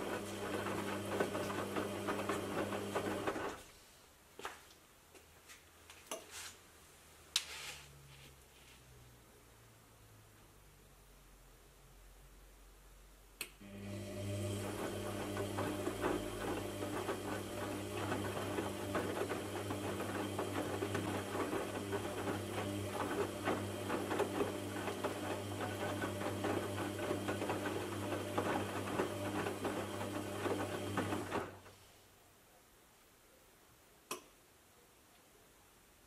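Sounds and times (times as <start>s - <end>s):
washing machine motor humming: 0.0s - 3.6s, 13.6s - 31.7s.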